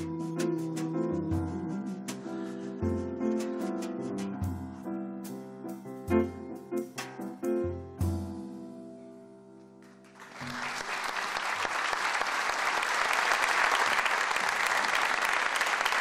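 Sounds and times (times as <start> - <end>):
audience applause: 9.8 - 16.0.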